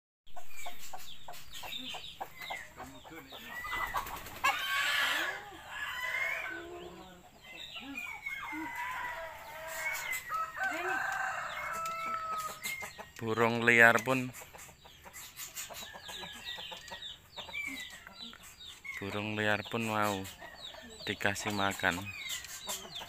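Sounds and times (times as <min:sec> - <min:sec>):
hens clucking: 0:00.3 - 0:23.0
small birds chirping: 0:00.3 - 0:23.0
rooster crowing: 0:08.1 - 0:12.6.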